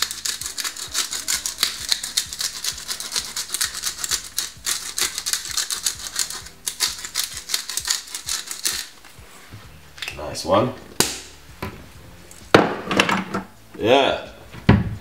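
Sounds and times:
pepper grinder clicking: 0.0s - 9.0s.

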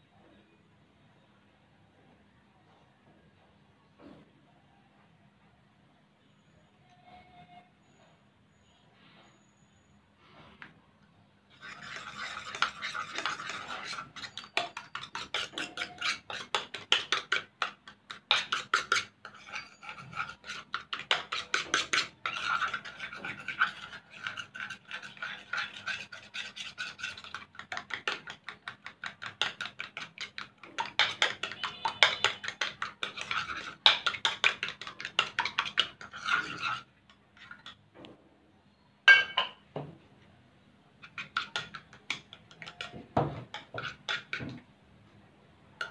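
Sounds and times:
metal spoon scraping a bowl: 11.5s - 37.8s, 39.1s - 39.6s, 41.0s - 44.6s.

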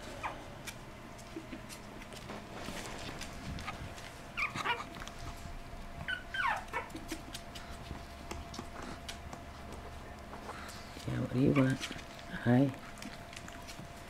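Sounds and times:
puppy whimpering: 3.6s - 5.0s, 6.0s - 7.5s, 11.4s - 12.1s.

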